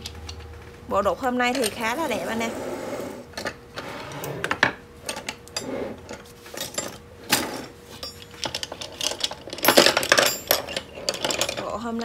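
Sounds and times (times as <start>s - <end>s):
chisels clinking: 1.2s - 2.2s, 5.0s - 12.0s.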